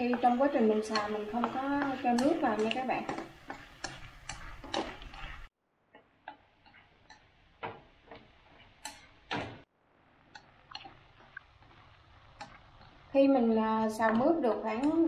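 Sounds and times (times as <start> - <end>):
chopsticks tapping metal wok: 0.0 - 9.4, 10.3 - 11.0, 14.0 - 15.0.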